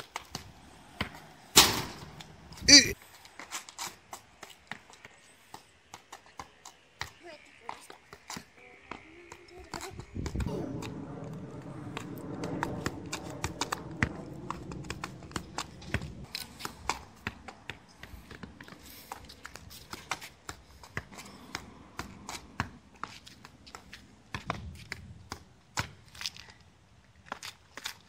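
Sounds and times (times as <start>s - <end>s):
ball taps on asphalt: 4.7s - 10.5s
low hum: 10.4s - 16.3s.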